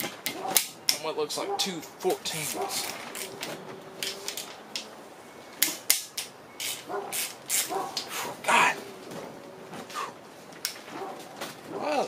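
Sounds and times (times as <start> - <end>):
ratchet clicking on metal: 5.6 - 7.7.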